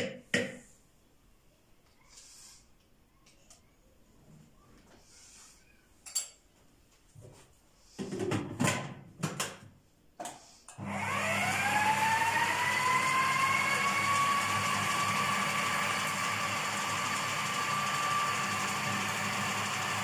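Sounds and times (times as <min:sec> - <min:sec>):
food processor motor whining: 0:10.8 - 0:20.0.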